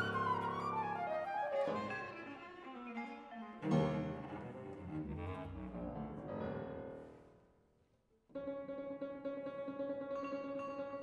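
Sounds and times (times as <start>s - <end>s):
chamber ensemble music: 0.0s - 6.4s.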